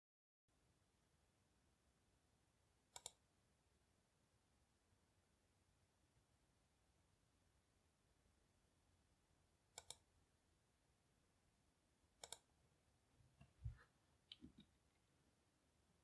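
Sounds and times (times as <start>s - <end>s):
computer mouse clicks: 2.9s - 3.2s, 9.8s - 10.1s, 12.2s - 12.5s.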